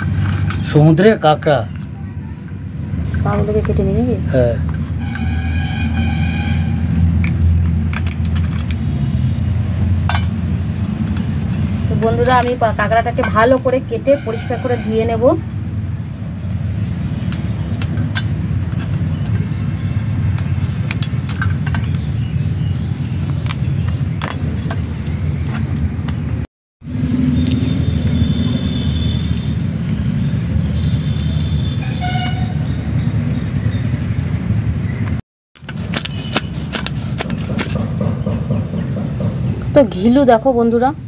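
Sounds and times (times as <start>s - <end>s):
crab shells cracking: 6.8s - 8.9s, 16.5s - 26.3s, 27.1s - 37.8s.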